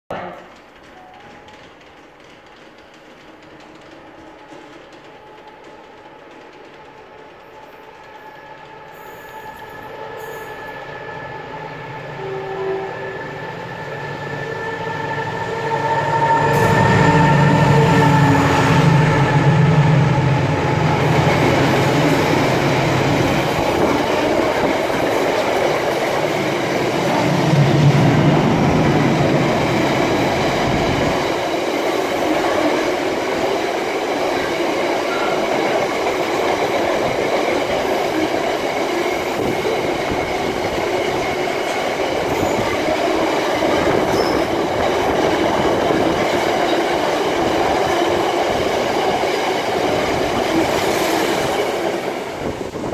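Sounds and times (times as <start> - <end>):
train wheels rumbling on rails: 0.1 - 52.9
diesel locomotive engine drone: 8.1 - 32.6.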